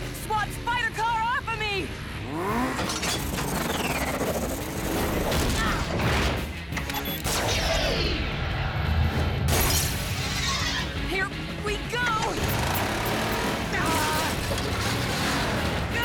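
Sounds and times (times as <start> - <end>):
background music: 0.0 - 16.0.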